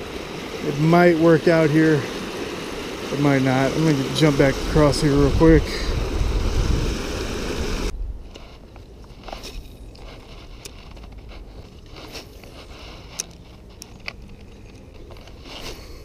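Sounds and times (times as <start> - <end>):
water rushing down spillway: 0.0 - 7.9
fishing tackle clicks and rustles: 8.2 - 16.0.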